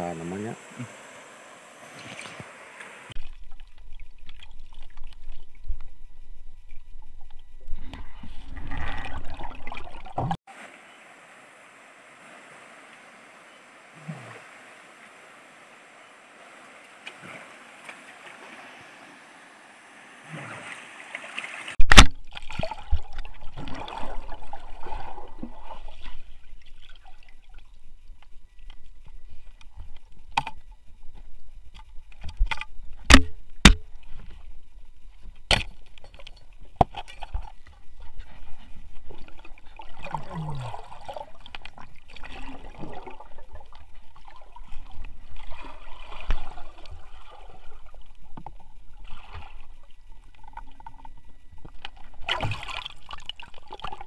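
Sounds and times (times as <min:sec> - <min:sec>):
steady rushing hiss: 0:00.0 - 0:03.2
water sloshing and trickling: 0:01.0 - 0:10.7, 0:11.8 - 0:33.2, 0:33.8 - 0:54.0.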